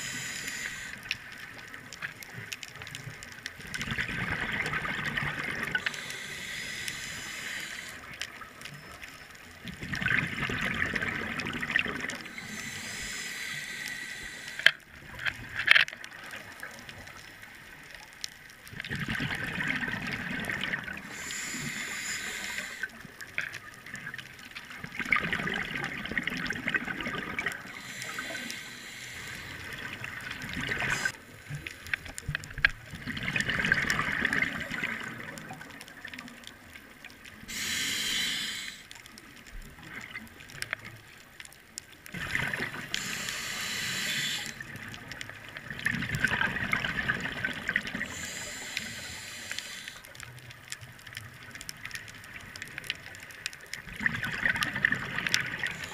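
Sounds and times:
diver breathing through regulator: 0:00.0 - 0:01.1, 0:05.6 - 0:08.2, 0:12.2 - 0:14.8, 0:21.0 - 0:23.0, 0:27.6 - 0:29.9, 0:30.6 - 0:31.2, 0:37.5 - 0:38.9, 0:42.8 - 0:44.7, 0:48.0 - 0:50.1, 0:55.6 - 0:55.9
exhaled bubbles rushing: 0:03.6 - 0:05.9, 0:09.8 - 0:12.6, 0:18.8 - 0:21.1, 0:24.8 - 0:27.8, 0:29.6 - 0:31.2, 0:32.9 - 0:35.8, 0:42.1 - 0:43.0, 0:44.6 - 0:48.3, 0:53.8 - 0:55.9.

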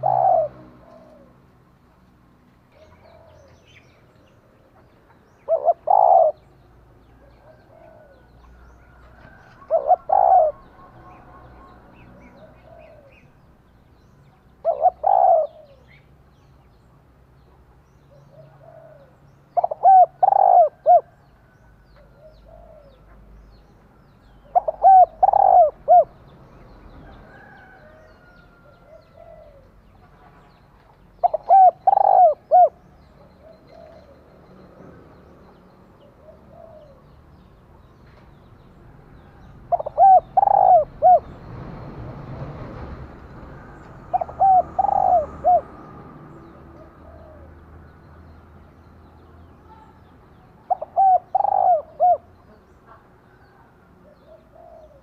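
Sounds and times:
dove cooing: 0:00.0 - 0:01.4, 0:02.7 - 0:03.8, 0:05.4 - 0:13.4, 0:14.6 - 0:16.0, 0:18.2 - 0:23.2, 0:24.4 - 0:26.2, 0:27.4 - 0:29.8, 0:31.2 - 0:34.2, 0:36.0 - 0:37.0, 0:39.3 - 0:41.4, 0:44.0 - 0:45.8, 0:46.5 - 0:47.5, 0:50.7 - 0:52.3, 0:54.0 - 0:55.0
faint bird calls: 0:04.7 - 0:13.4, 0:14.6 - 0:16.1, 0:24.3 - 0:26.2, 0:31.2 - 0:34.2, 0:50.6 - 0:55.0.

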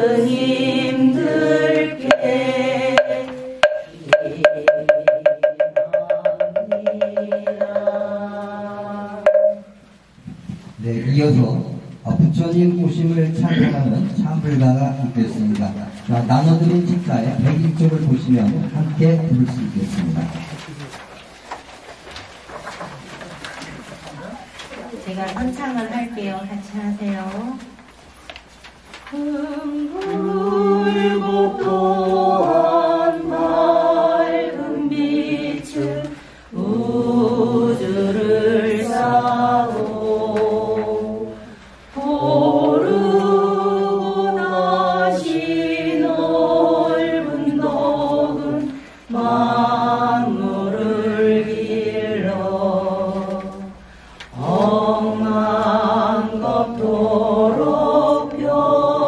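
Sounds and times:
group chanting in unison: 0:00.0 - 0:05.2, 0:06.6 - 0:09.6, 0:29.2 - 0:53.7, 0:54.3 - 0:59.0.

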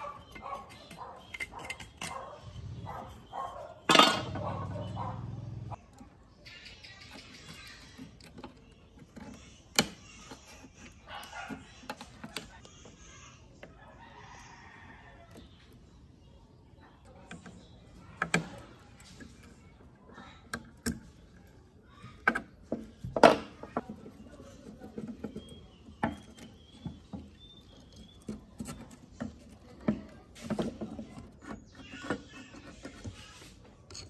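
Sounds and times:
screwdriver clicks and scrapes: 0:00.2 - 0:02.3.

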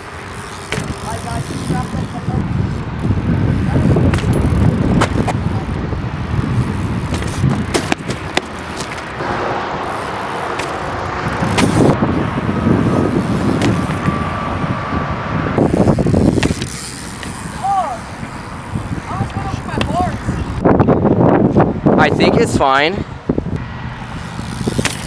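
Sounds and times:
bike clicks and knocks: 0:00.0 - 0:09.2, 0:09.8 - 0:12.0, 0:12.9 - 0:14.3, 0:15.6 - 0:21.0, 0:24.0 - 0:25.0
bikes rolling over gravel: 0:00.0 - 0:14.6, 0:15.6 - 0:20.6, 0:24.0 - 0:25.0.

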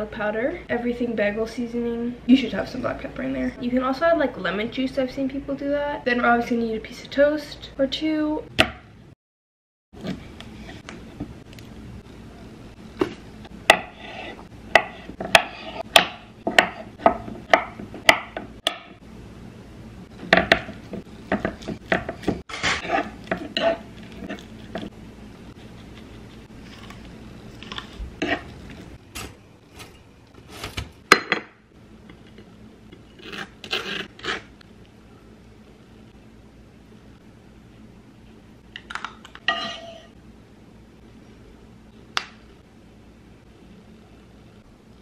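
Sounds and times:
knife scraping toast: 0:21.5 - 0:24.9.

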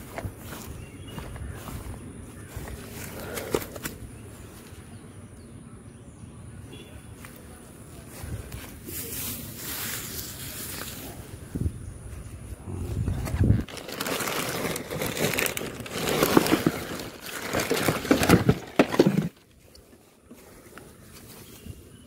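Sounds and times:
plastic bags rustling: 0:13.3 - 0:19.4.

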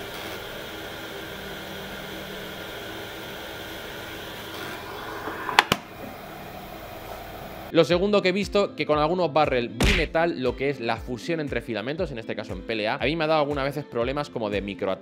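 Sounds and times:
machine whirring and humming: 0:00.0 - 0:07.7.

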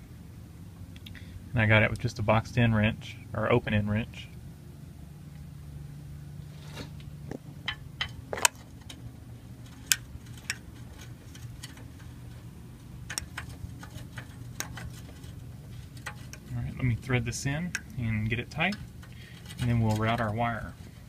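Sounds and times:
steady low hum: 0:00.0 - 0:21.0
small metallic clicks and taps: 0:07.0 - 0:16.6, 0:17.6 - 0:20.2.

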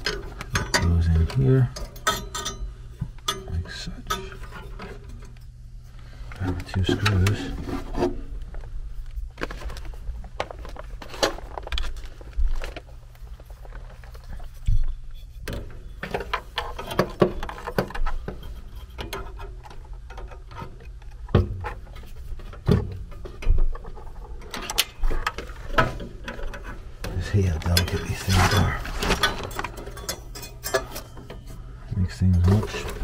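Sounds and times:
metal parts clicking and tapping: 0:00.0 - 0:05.5, 0:15.4 - 0:31.5.

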